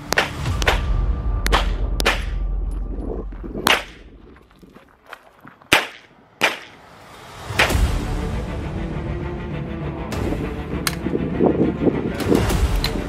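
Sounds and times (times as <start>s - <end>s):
pistol shots with echo: 5.7s - 6.8s.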